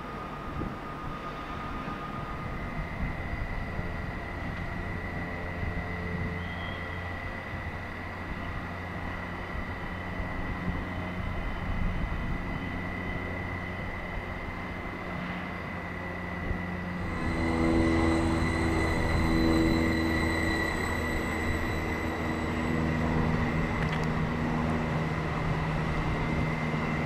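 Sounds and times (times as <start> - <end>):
electric train humming and whining: 0.0 - 27.0.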